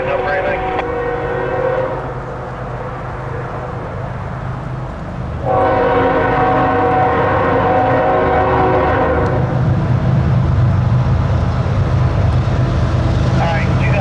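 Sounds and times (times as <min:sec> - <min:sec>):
locomotive air horn: 0:00.0 - 0:02.2, 0:05.4 - 0:09.6
freight train rumble: 0:00.0 - 0:14.0.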